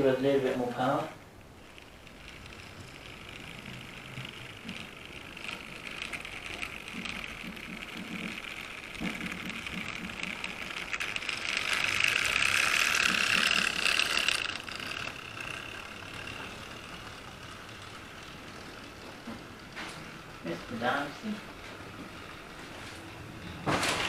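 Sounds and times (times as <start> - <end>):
model train motor whining: 0.0 - 24.0.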